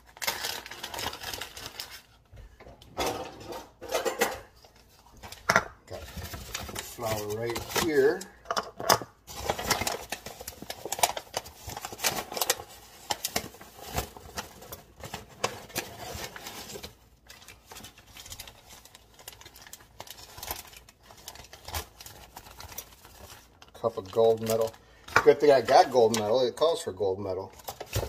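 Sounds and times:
paper and plastic bag crinkling: 0:00.0 - 0:02.3, 0:04.5 - 0:08.5, 0:09.2 - 0:28.0.

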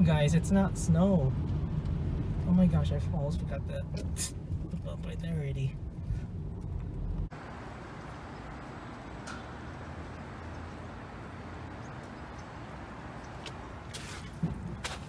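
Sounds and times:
footstep crunching on hailstones: 0:13.1 - 0:15.0.

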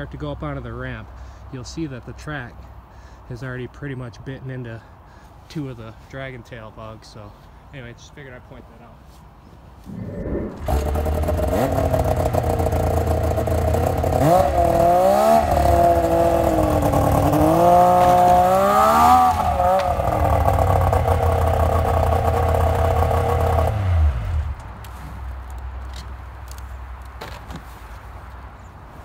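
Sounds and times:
snowmobile engine revving: 0:09.9 - 0:24.5.

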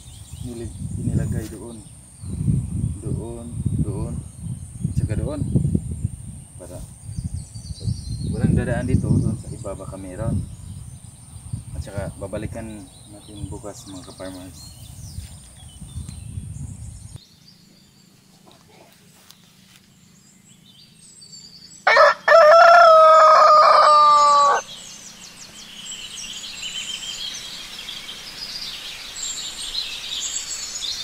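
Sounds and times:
small birds chirping: 0:00.0 - 0:31.0
rooster crowing: 0:21.8 - 0:24.7.

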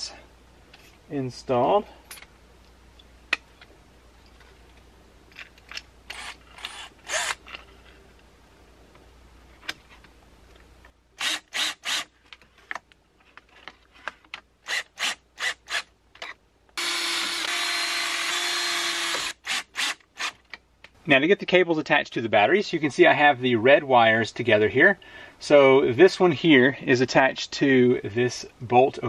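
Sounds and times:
parts scraping and clicking: 0:02.1 - 0:08.3, 0:11.8 - 0:15.1, 0:15.7 - 0:17.5
cordless drill driving a screw: 0:06.1 - 0:07.4, 0:11.2 - 0:12.1, 0:14.7 - 0:15.9, 0:16.8 - 0:20.4.

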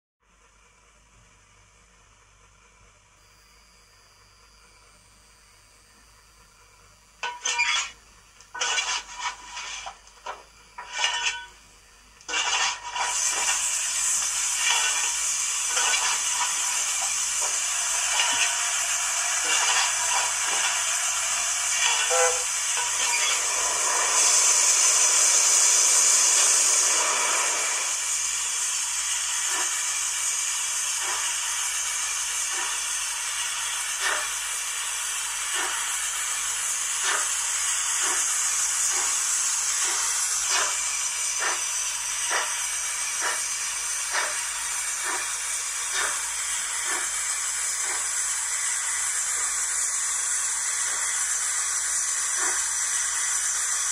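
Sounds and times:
steam hiss: 0:12.3 - 0:53.9
steam exhaust chuffs: 0:12.8 - 0:49.9.

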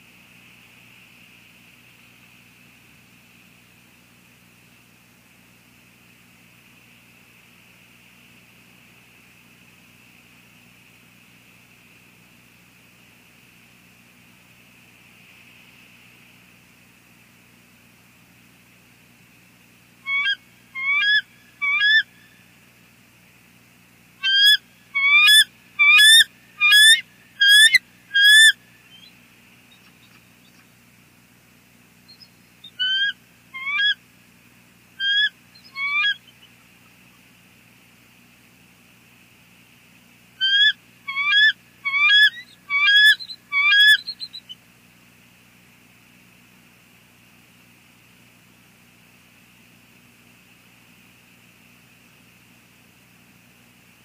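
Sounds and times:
eagles high whistled calls: 0:20.0 - 0:22.4, 0:24.2 - 0:29.1, 0:32.1 - 0:34.0, 0:35.0 - 0:36.6, 0:40.4 - 0:44.6.

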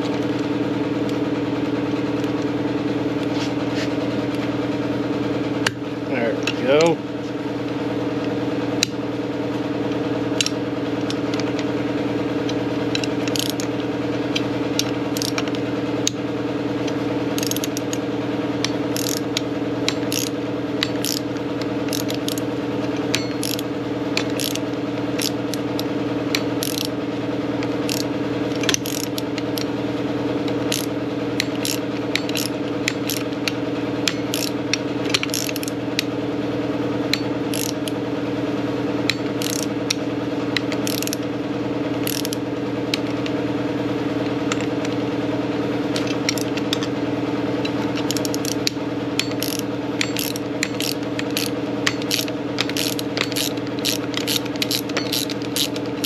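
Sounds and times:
low hum: 0:00.0 - 0:56.0
hand ratchet clicking: 0:10.4 - 0:11.6, 0:12.5 - 0:13.7, 0:14.3 - 0:16.2, 0:16.8 - 0:18.0, 0:18.6 - 0:27.0, 0:27.6 - 0:29.7, 0:30.5 - 0:36.1, 0:37.1 - 0:38.0, 0:39.1 - 0:40.0, 0:40.6 - 0:41.2, 0:42.0 - 0:43.2, 0:46.0 - 0:46.9, 0:47.6 - 0:56.0.

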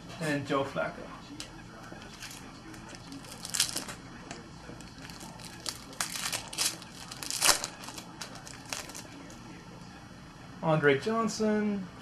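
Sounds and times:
foil wrapper tearing and crinkling: 0:02.1 - 0:04.0, 0:04.8 - 0:09.3.

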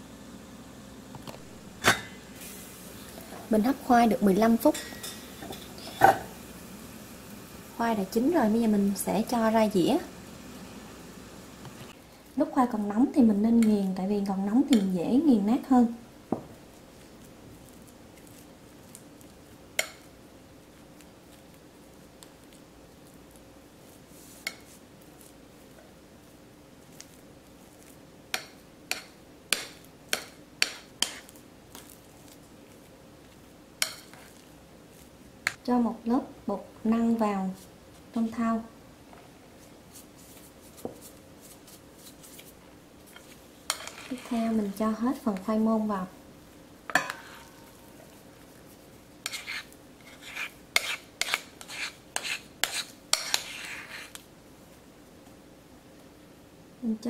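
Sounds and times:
scraping and clinking on a plate: 0:04.7 - 0:06.3, 0:43.2 - 0:44.4, 0:46.9 - 0:47.6, 0:49.3 - 0:54.1.

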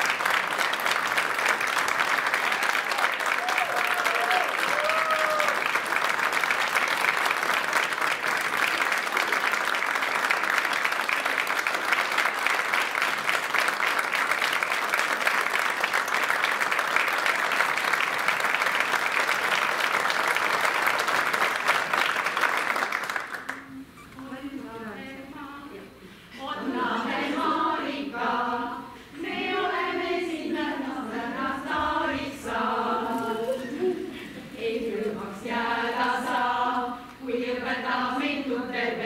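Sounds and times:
audience applause: 0:00.0 - 0:23.7.

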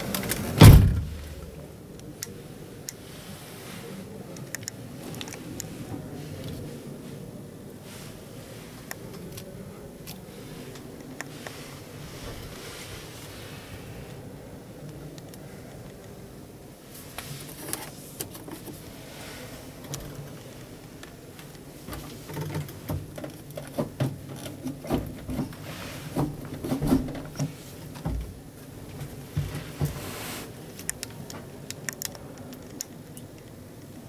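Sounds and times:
handling noise in car cabin: 0:00.0 - 0:01.8, 0:16.9 - 0:31.9.

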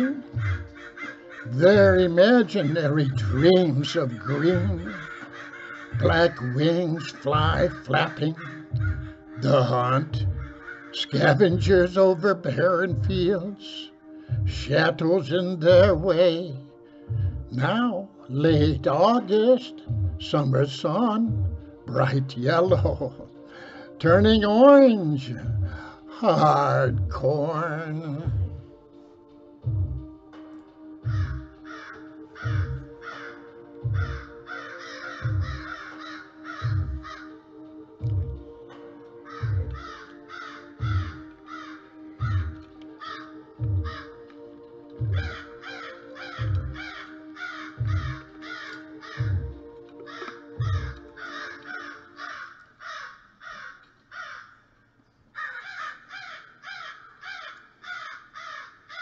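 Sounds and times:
crows cawing: 0:00.0 - 0:11.8, 0:22.8 - 0:24.0, 0:25.4 - 0:26.5, 0:31.0 - 0:59.0
background music drone: 0:00.0 - 0:59.0
low drum beat: 0:00.3 - 0:00.8, 0:01.7 - 0:02.3, 0:03.1 - 0:03.5, 0:04.5 - 0:05.0, 0:06.0 - 0:06.6, 0:07.3 - 0:08.1, 0:08.7 - 0:10.6, 0:11.3 - 0:11.9, 0:12.9 - 0:13.4, 0:14.3 - 0:14.8, 0:15.7 - 0:16.2, 0:17.1 - 0:17.7, 0:18.5 - 0:19.0, 0:19.9 - 0:20.4, 0:21.3 - 0:21.7, 0:22.6 - 0:23.2, 0:24.1 - 0:24.5, 0:28.2 - 0:28.7, 0:29.7 - 0:30.2, 0:31.0 - 0:31.6, 0:32.4 - 0:33.0, 0:33.8 - 0:34.3, 0:35.2 - 0:35.8, 0:36.6 - 0:37.2, 0:38.0 - 0:38.4, 0:39.4 - 0:40.0, 0:40.8 - 0:41.3, 0:42.2 - 0:42.6, 0:43.6 - 0:44.1, 0:45.0 - 0:45.5, 0:46.4 - 0:47.0, 0:47.8 - 0:48.5, 0:49.2 - 0:49.6, 0:50.6 - 0:51.1.

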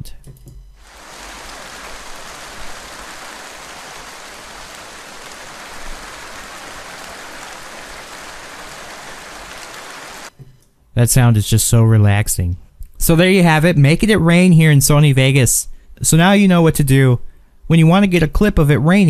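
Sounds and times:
steady rainfall hiss: 0:00.8 - 0:10.3.

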